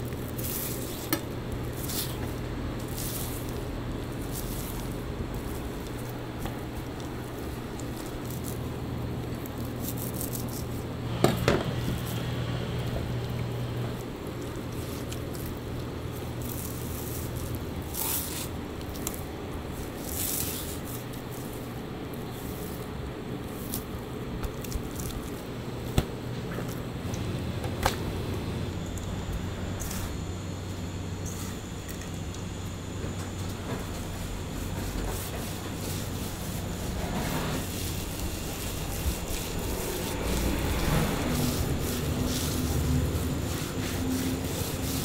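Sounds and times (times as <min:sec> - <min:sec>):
hands rubbing stuffing into meat: 0:00.0 - 0:11.0, 0:13.9 - 0:25.5, 0:34.2 - 0:45.0
wet squishing and scraping: 0:00.0 - 0:27.2, 0:33.4 - 0:45.0
steady low hum: 0:00.0 - 0:45.0.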